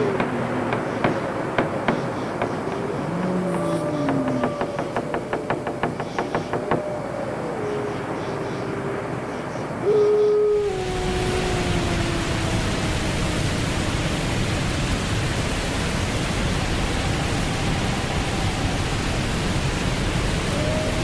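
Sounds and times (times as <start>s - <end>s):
long held falling tone: 0.0s - 0.7s, 2.7s - 14.2s
ocean surf rushing: 0.0s - 21.0s.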